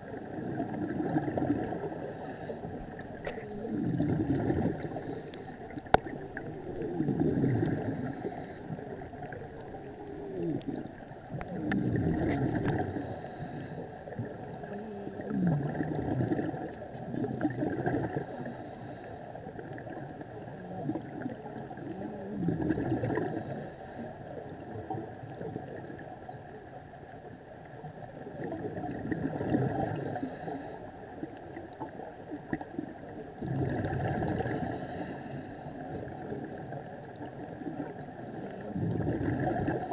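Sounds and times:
bubbles gurgling underwater: 0.0 - 18.6, 19.6 - 23.6, 27.8 - 30.5, 31.1 - 35.1, 35.8 - 39.9.

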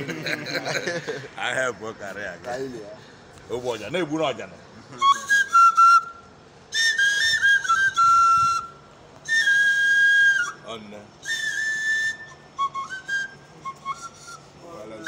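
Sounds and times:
wooden flute playing: 4.9 - 15.0.

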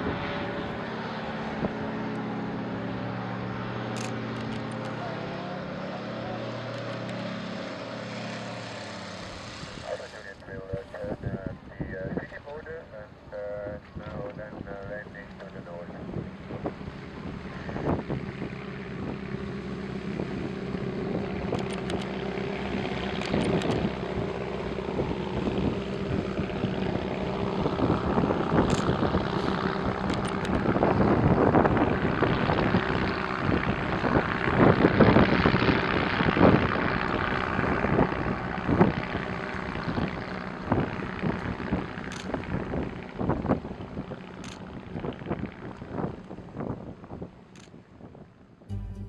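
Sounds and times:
low engine hum: 0.0 - 49.0
propeller engine droning: 0.0 - 49.0
wind buffeting microphone: 15.9 - 19.4, 22.6 - 48.4.

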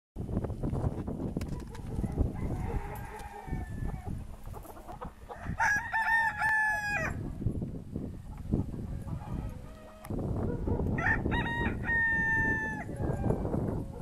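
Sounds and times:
rooster crowing: 2.0 - 4.2, 5.2 - 7.3, 9.0 - 14.0.

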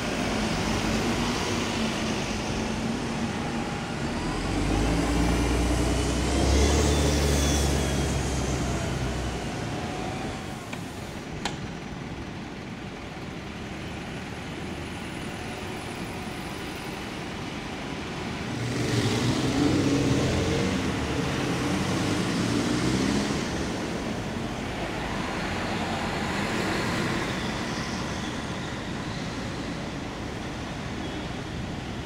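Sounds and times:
bus engine passing: 0.0 - 32.0
steady traffic hum: 0.0 - 32.0
cars passing: 18.3 - 32.0.

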